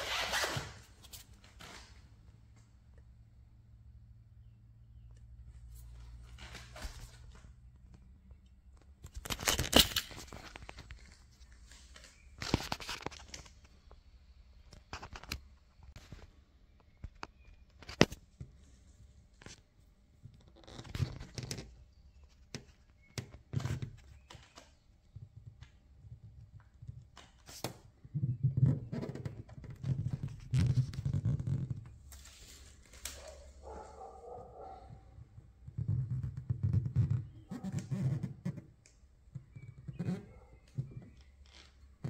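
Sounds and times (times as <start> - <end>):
microphone handling clicks and knocks: 20.2 - 32.0
rubbing on microphone: 27.4 - 42.0.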